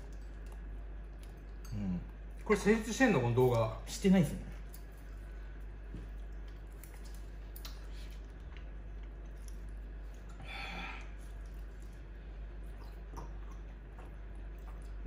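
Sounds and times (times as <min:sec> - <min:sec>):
chewing: 0:00.0 - 0:03.6, 0:04.4 - 0:15.0
low steady hum: 0:00.0 - 0:15.0.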